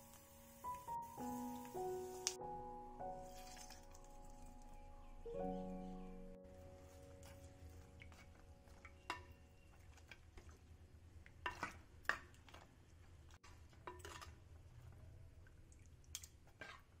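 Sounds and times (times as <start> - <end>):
ladle scraping clay pot: 13.7 - 14.4.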